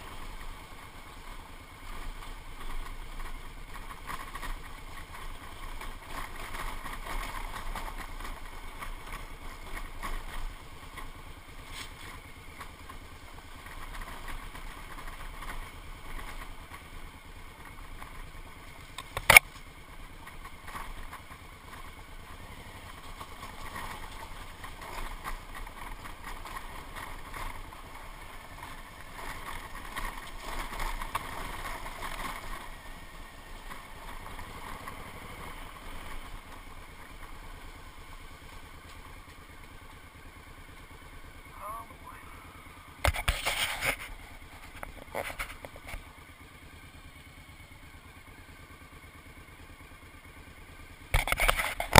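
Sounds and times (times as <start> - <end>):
motorcycle engine running: 0.0 - 51.9
branch striking camera: 19.0 - 19.5, 43.0 - 44.2.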